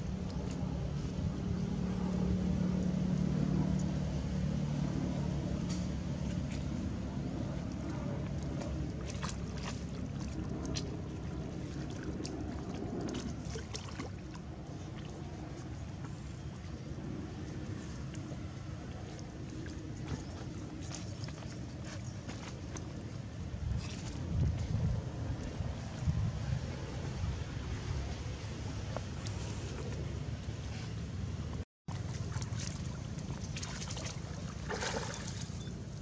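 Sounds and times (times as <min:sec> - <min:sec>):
low motor hum: 0:00.0 - 0:36.0
water splashing: 0:07.5 - 0:30.5, 0:31.9 - 0:36.0.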